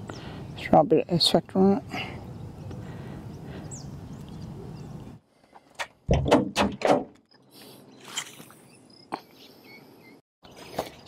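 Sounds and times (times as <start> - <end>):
loud knocks and thumps: 6.1 - 7.2.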